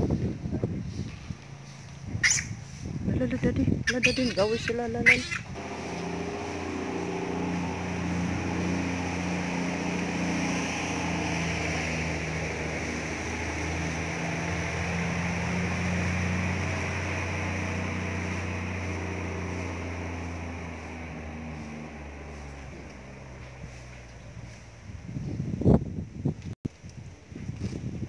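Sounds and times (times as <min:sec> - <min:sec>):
steady engine hum: 0:00.0 - 0:26.4
constant hiss: 0:05.6 - 0:24.1.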